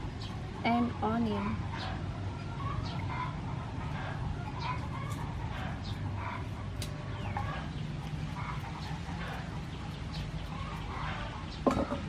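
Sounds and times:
chickens clucking: 0.2s - 12.0s
knife scraping a carrot: 4.1s - 11.4s.

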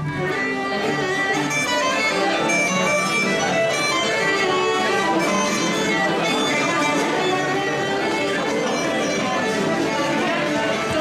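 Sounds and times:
fiddles playing: 0.0s - 11.0s
wind instruments playing: 0.0s - 11.0s.

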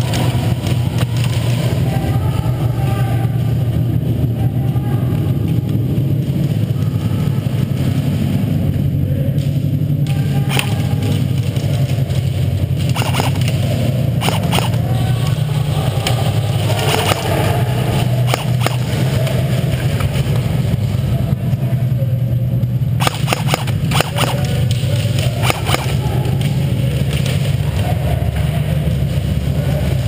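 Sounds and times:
steady low hum: 0.0s - 30.0s
airsoft gunfire cracks: 12.9s - 13.6s, 14.2s - 14.8s, 18.2s - 19.0s, 23.0s - 24.7s, 25.4s - 26.0s.

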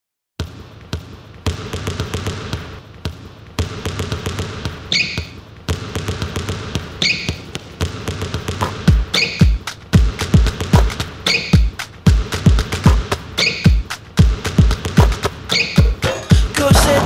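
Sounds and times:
basketball dribbling thuds: 0.4s - 17.0s
sneaker squeaks: 4.7s - 5.5s, 6.8s - 7.6s, 9.0s - 9.6s, 11.2s - 11.8s, 13.4s - 13.9s, 15.5s - 16.1s.

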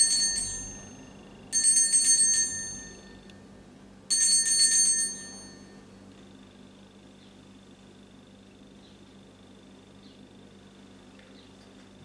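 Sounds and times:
altar bells jingling: 0.0s - 3.2s.

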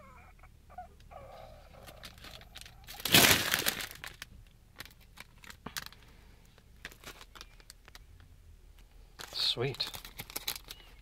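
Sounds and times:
foil chip bag crinkling: 1.8s - 6.1s, 6.8s - 8.0s, 9.2s - 11.0s.

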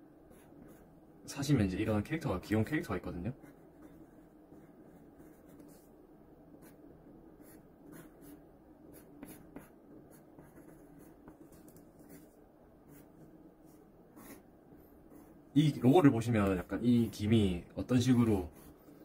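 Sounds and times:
pencil scratching on paper: 0.3s - 0.9s, 3.3s - 5.9s, 6.6s - 14.5s, 18.2s - 19.0s.

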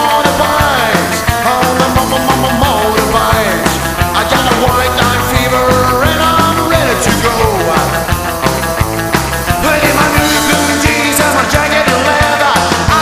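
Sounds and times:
rock music: 0.0s - 13.0s.

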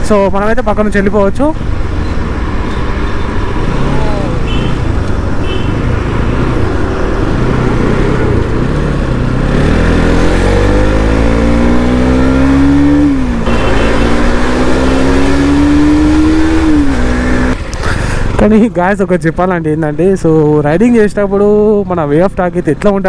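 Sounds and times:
motorcycle engine accelerating: 5.9s - 17.6s.

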